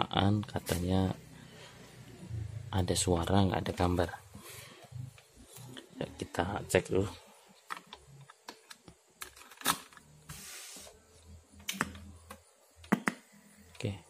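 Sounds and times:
brief hiss: 10.3 - 11.0.

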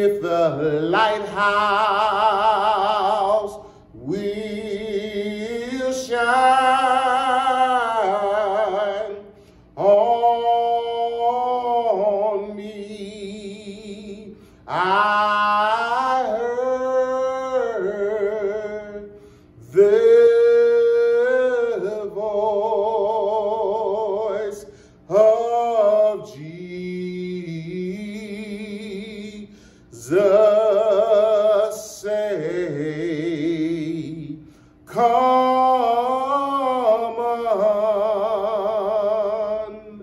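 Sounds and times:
man singing unaccompanied hymn: 0.0 - 40.0
man breathing: 3.6 - 4.0, 9.3 - 9.8, 14.3 - 14.7, 19.1 - 19.6, 24.6 - 25.1, 29.5 - 29.9, 34.4 - 34.9.

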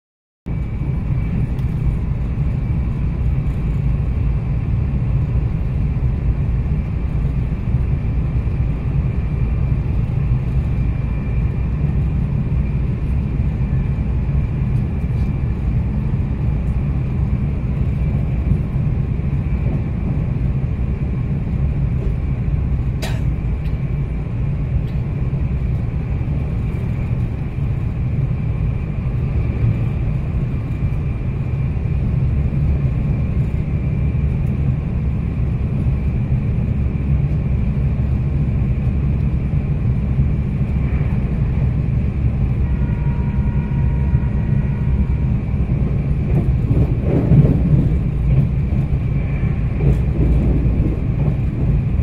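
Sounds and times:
train wheels rumbling on rail: 0.5 - 52.0.

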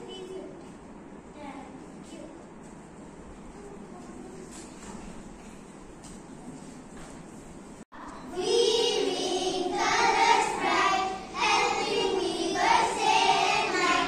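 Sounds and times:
young children singing: 8.0 - 14.0.

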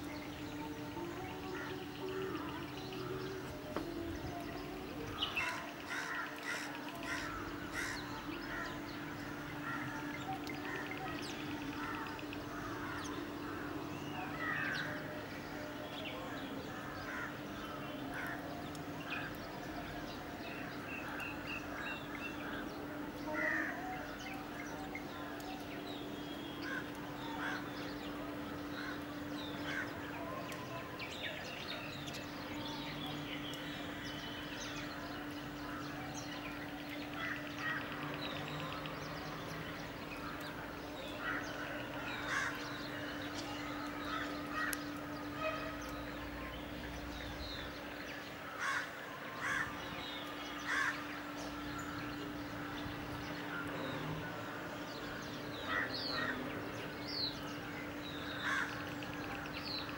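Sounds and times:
birds chirping and calling: 0.0 - 59.9.

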